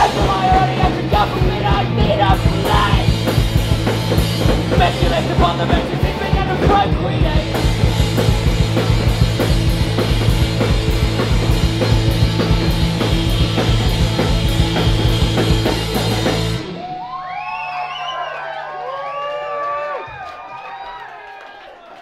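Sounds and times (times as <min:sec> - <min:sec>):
live rock band playing: 0:00.0 - 0:17.2
crowd whooping and cheering: 0:13.2 - 0:22.0.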